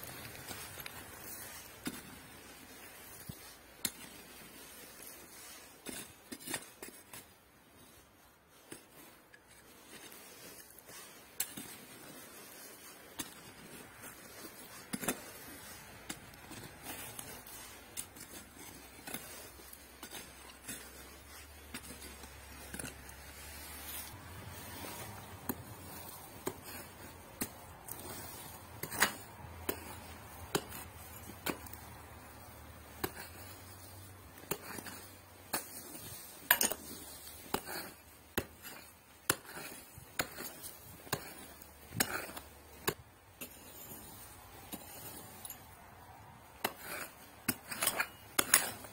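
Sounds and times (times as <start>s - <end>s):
scraping: 8.6s - 48.9s
mattock striking stony soil: 10.0s - 48.9s
loose stones clinking: 24.8s - 48.9s.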